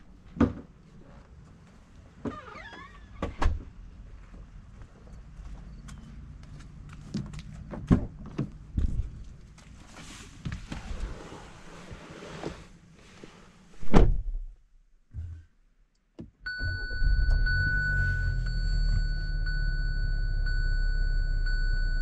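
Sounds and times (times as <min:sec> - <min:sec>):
low engine rumble: 0:16.5 - 0:22.0
steady high tone: 0:16.5 - 0:22.0.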